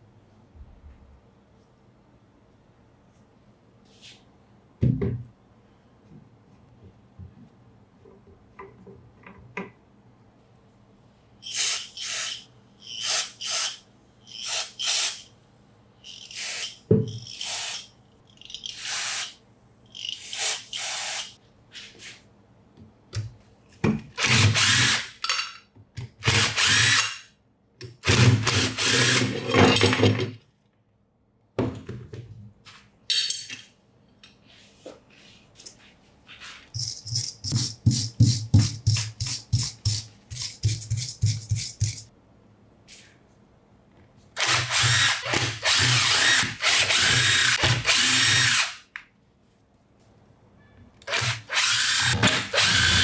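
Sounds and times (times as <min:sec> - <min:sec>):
handheld power tool motor: 0:20.2 - 0:21.3, 0:44.4 - 0:48.8, 0:51.1 - 0:53.0.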